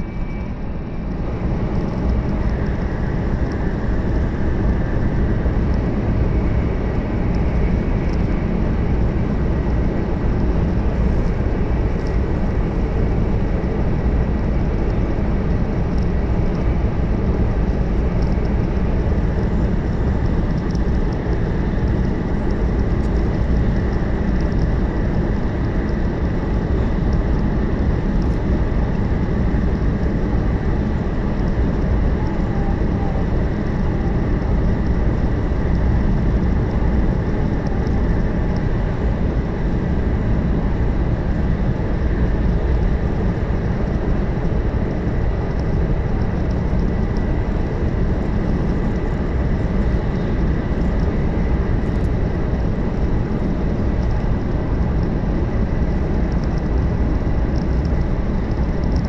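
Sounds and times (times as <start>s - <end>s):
faint high hum: 0.0s - 59.0s
train wheels and air rumble: 0.0s - 59.0s.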